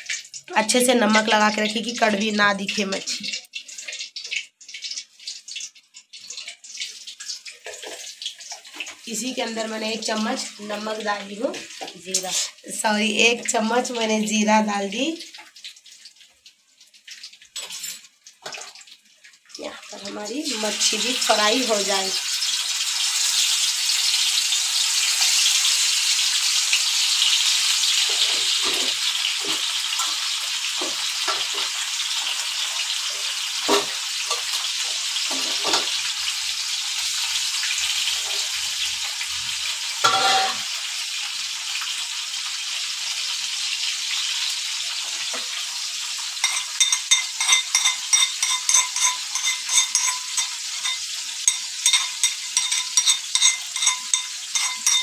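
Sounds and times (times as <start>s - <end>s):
fish sizzling in oil: 0.0s - 55.0s
spoon clinking in bowl: 46.4s - 55.0s.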